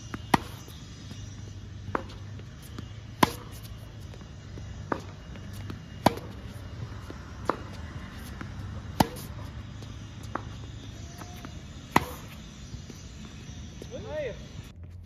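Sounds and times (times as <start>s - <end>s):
tennis racket hitting ball: 0.0s - 14.0s
distant tennis ball hits: 3.2s - 3.6s, 4.9s - 6.4s, 8.8s - 9.5s, 11.2s - 12.4s.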